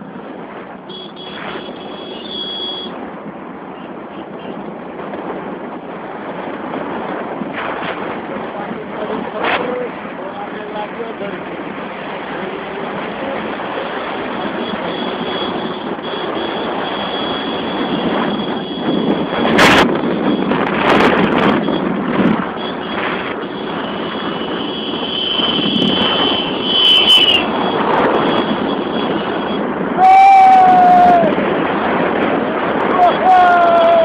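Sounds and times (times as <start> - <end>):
motorcycle engine and wind noise: 0.0 - 34.0
high falling whine: 14.2 - 31.4.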